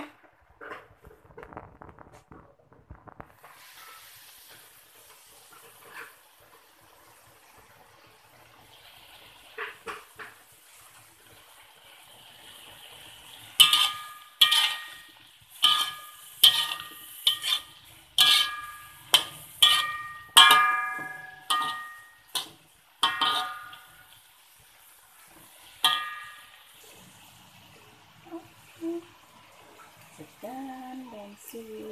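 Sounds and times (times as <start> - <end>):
metal spatula clanging on wok: 13.6 - 24.1, 25.8 - 26.7.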